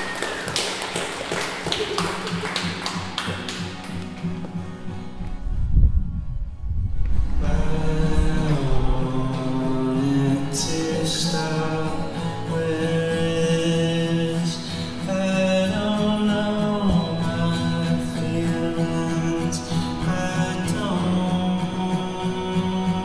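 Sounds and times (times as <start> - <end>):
acoustic guitar: 0.0 - 23.0
man singing long notes: 7.4 - 23.0.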